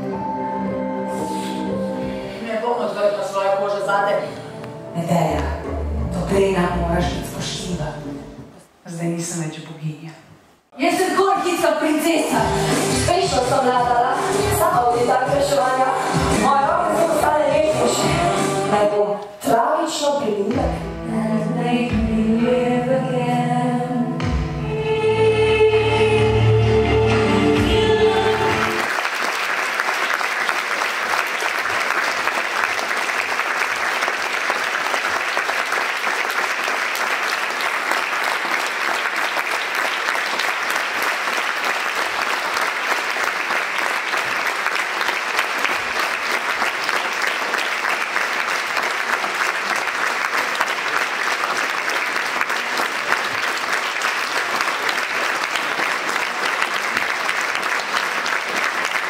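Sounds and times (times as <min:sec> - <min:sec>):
audience applauding: 0:28.3 - 0:59.0.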